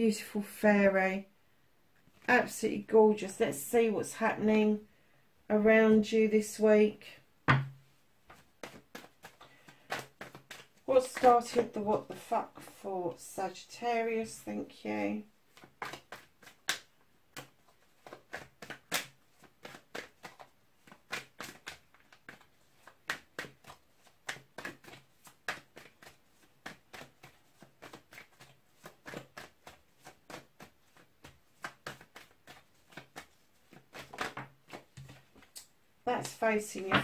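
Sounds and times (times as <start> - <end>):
cards being shuffled: 8.3 - 12.2, 15.5 - 37.0.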